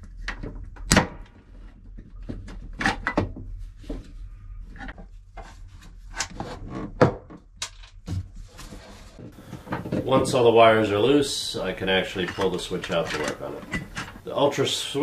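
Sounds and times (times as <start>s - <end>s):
wires and connectors rustling: 7.6s - 15.0s.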